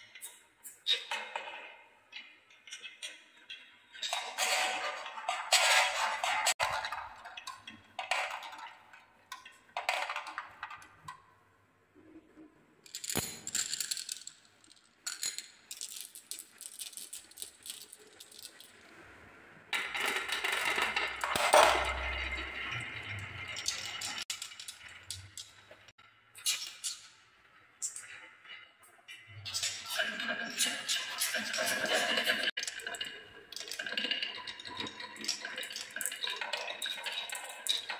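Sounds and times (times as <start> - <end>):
glass marbles rolling on wooden track: 2.6 - 11.1, 12.8 - 18.9, 19.8 - 25.9, 29.4 - 37.9.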